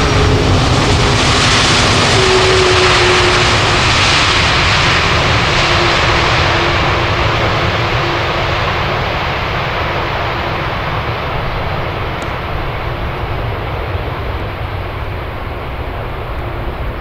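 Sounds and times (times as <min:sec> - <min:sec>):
jet engine rumble: 0:00.0 - 0:17.0.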